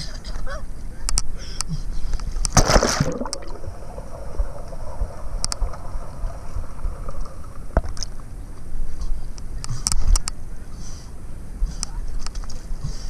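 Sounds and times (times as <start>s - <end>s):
wind rumble: 2.8s - 9.4s.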